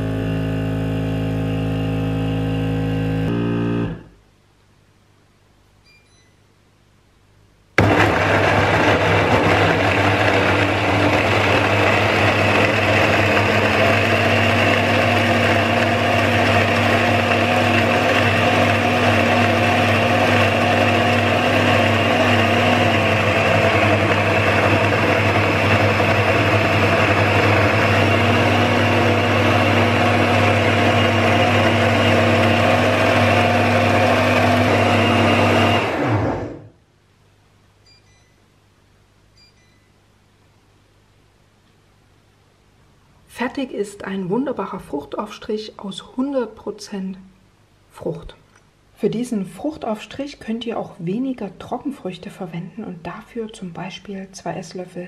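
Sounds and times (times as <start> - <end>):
blender motor running: 0.0 - 4.0, 7.8 - 36.7.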